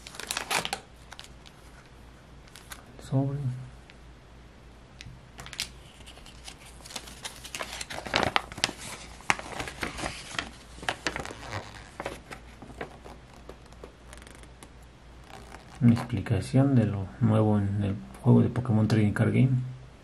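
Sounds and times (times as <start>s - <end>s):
paper rustling and crinkling: 0.0s - 1.9s, 2.5s - 2.8s, 5.4s - 14.6s.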